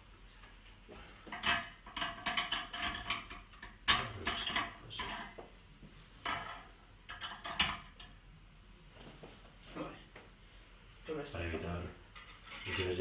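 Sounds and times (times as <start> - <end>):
metal kitchenware clinking: 1.4 - 5.4.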